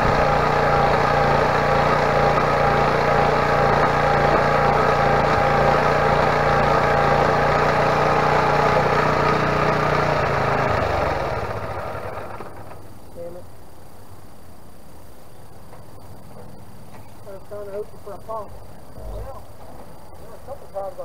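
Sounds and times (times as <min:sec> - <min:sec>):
small engine running: 0:00.0 - 0:13.0.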